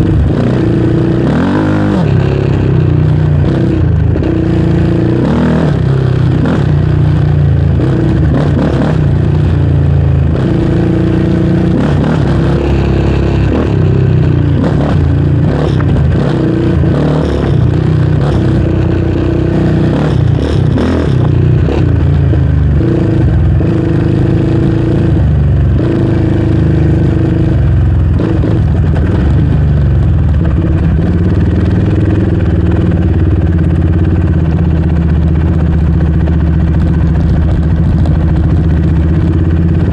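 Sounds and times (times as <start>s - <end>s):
atv engine running: 0.0s - 39.9s
knocks and clatter over bumps: 10.2s - 39.9s.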